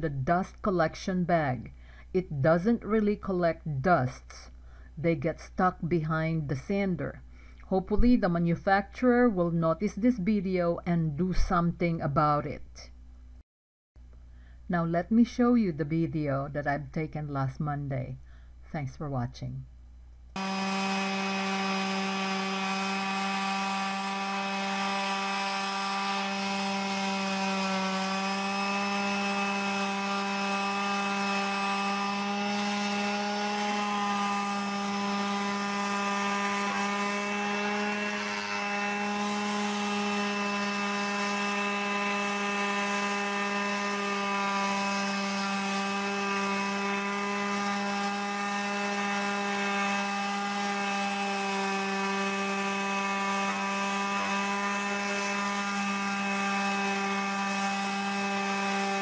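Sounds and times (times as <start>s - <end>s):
orbital sander on wood: 20.4s - 59.0s.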